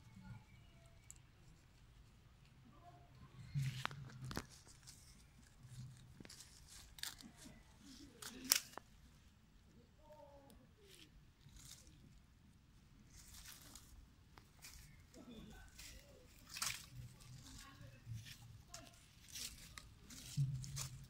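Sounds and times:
leafy stem rustling and snapping: 3.5 - 8.9, 13.1 - 21.0
dry leaf litter crackling: 3.6 - 8.8, 13.1 - 21.0.

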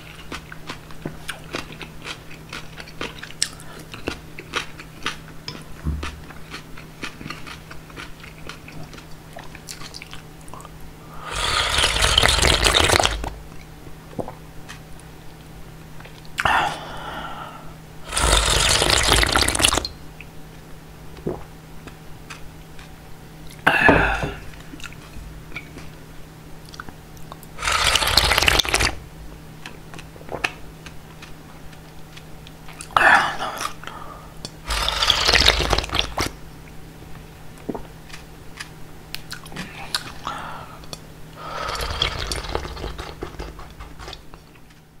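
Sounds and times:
person slurping broth: 11.2 - 13.3, 18.0 - 19.9, 27.6 - 29.0, 34.6 - 36.3, 41.4 - 43.6.

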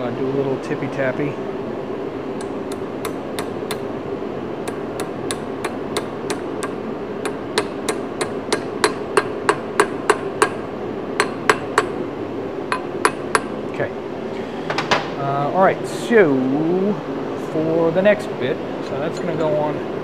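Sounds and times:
hammer tapping on steel: 2.4 - 3.8, 4.6 - 10.6, 11.2 - 12.0, 12.7 - 13.5.

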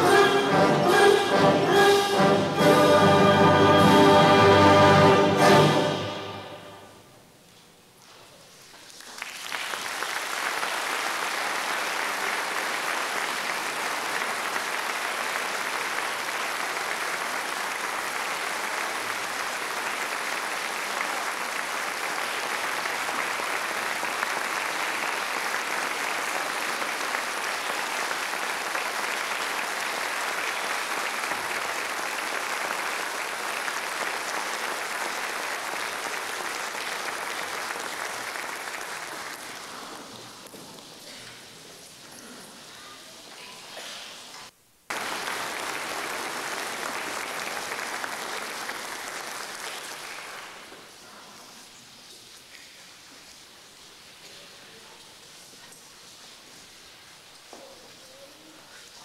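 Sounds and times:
audience applause: 8.7 - 41.5, 44.4 - 51.2.

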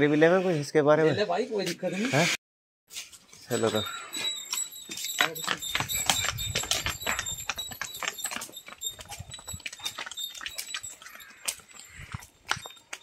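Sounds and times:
footsteps on dirt path: 2.9 - 13.0
hooves on dirt path: 3.0 - 13.0.

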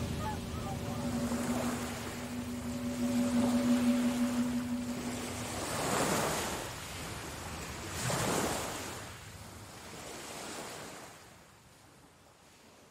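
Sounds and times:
rushing noise: 0.0 - 6.4
low held tone: 0.0 - 6.9.

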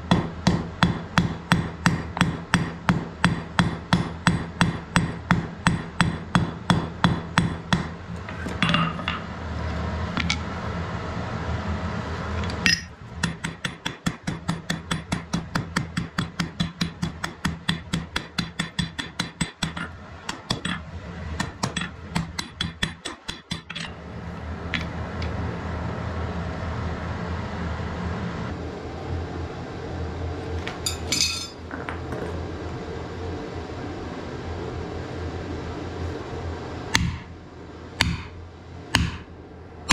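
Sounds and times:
hammer striking iron on anvil: 0.0 - 9.3, 12.6 - 20.8, 21.4 - 23.9, 30.8 - 31.6, 36.9 - 37.3, 38.0 - 39.3
steady low hum: 0.0 - 39.9.

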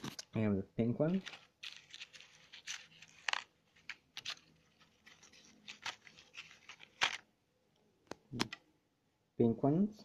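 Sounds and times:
cardboard packet crinkling: 1.1 - 7.3.

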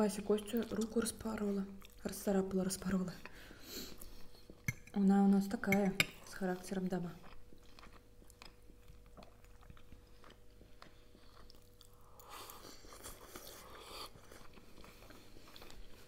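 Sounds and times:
people chewing: 7.2 - 16.0.

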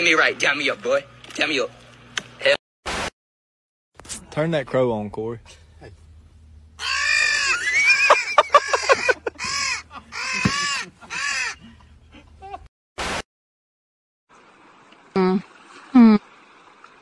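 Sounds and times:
crow cawing: 6.8 - 7.9, 8.5 - 11.7.

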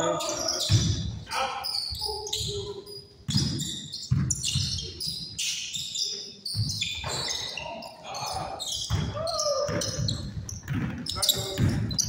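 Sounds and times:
sneakers squeaking: 0.0 - 12.0
basketball bouncing on wood floor: 3.3 - 4.8, 8.9 - 12.0.

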